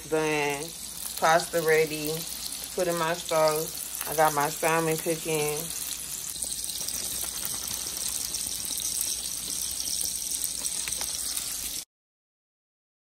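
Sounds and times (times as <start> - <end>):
food sizzling in a hot pan: 0.0 - 11.9
faint crackles: 5.7 - 11.8.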